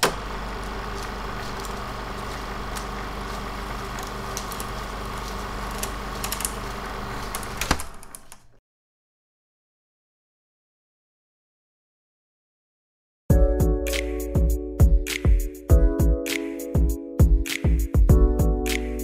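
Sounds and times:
car engine idling: 0:00.0 - 0:07.6.

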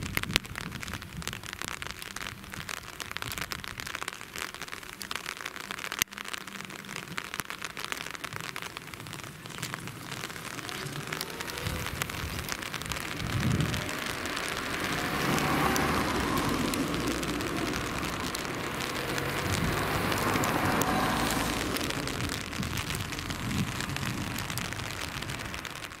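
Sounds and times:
cars driving past: 0:10.2 - 0:26.0.

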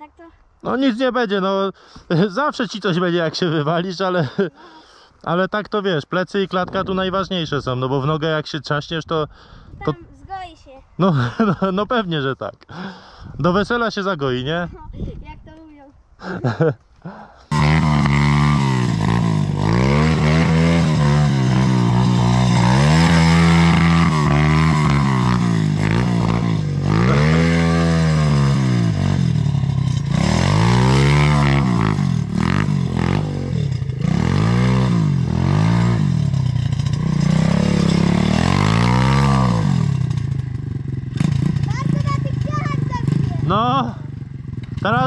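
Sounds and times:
quad engine revving: 0:17.5 - 0:45.0.

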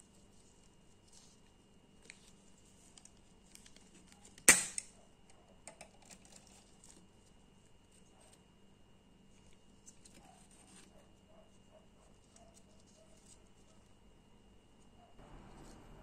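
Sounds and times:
sharp metallic snap: 0:04.5 - 0:04.9.

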